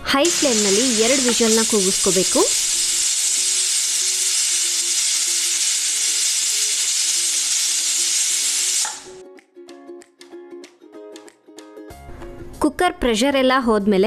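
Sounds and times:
pressure cooker steam hissing: 0:00.0 - 0:09.2.

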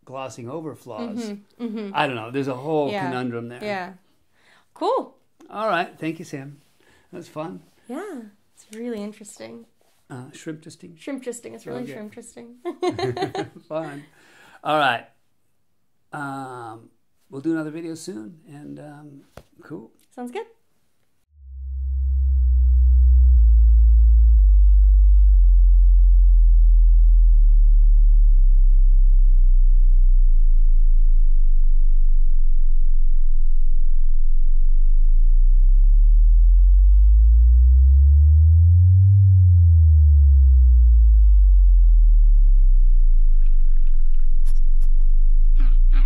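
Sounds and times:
deep electronic sine tones: 0:21.3 - 0:46.0.

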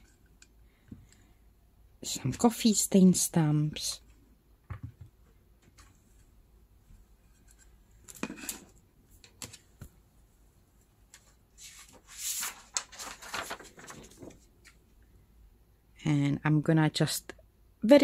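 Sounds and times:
plastic rustling and scraping: 0:11.6 - 0:14.5.

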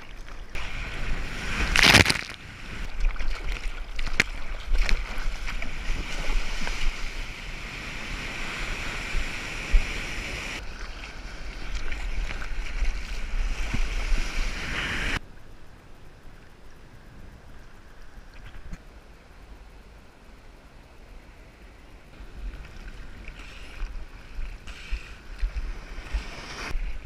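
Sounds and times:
water rushing: 0:00.0 - 0:15.2.

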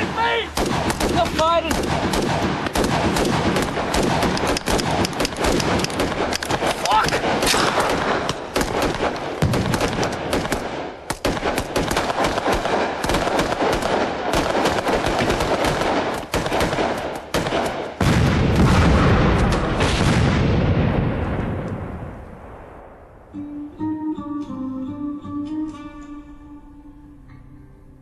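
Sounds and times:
rifle and machine-gun fire: 0:00.0 - 0:21.7.

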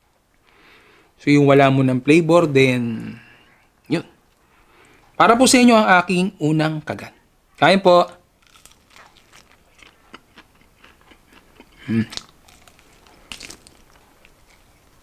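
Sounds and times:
crunching fried chicken: 0:08.4 - 0:15.0
person humming: 0:11.8 - 0:12.2.

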